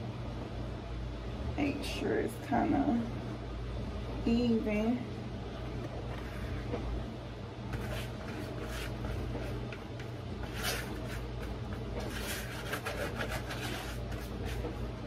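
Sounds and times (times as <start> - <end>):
steady low hum: 0.0 - 15.0
spatula scraping plastic bowl: 7.8 - 14.8.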